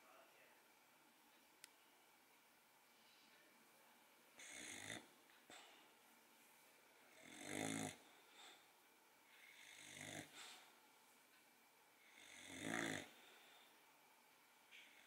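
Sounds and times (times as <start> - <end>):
puppy snoring: 4.4 - 5.8, 7.1 - 8.6, 9.3 - 10.7, 12.0 - 13.6.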